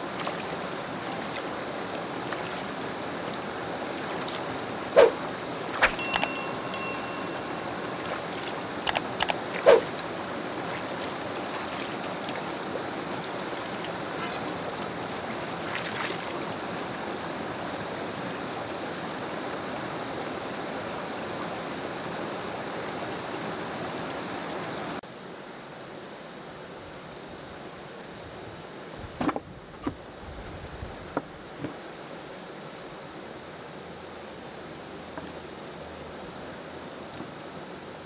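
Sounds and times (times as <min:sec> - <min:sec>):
water splashes and plops: 0:00.0 - 0:06.0, 0:08.0 - 0:16.6
stream running over rocks: 0:00.0 - 0:29.0, 0:29.6 - 0:38.0
short bell-like chime: 0:06.0 - 0:07.8.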